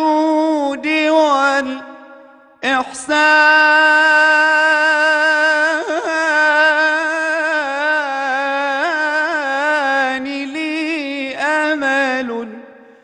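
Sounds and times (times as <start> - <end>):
man singing: 0.0 - 13.0.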